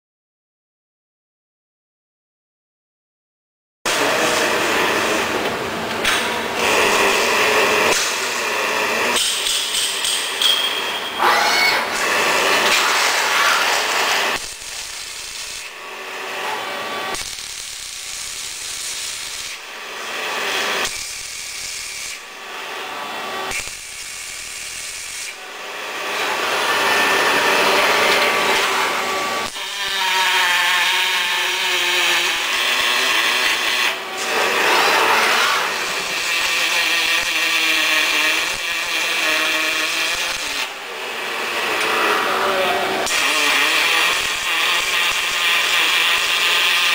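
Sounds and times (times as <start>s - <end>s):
welding arc crackling hiss: 6.0s - 10.4s, 11.5s - 27.5s, 28.2s - 40.8s, 43.0s - 46.9s.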